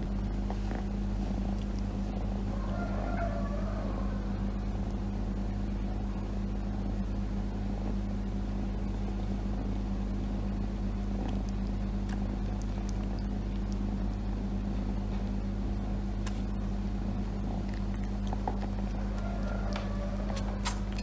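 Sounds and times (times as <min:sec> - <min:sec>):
kitten purring: 0:10.7 - 0:14.5.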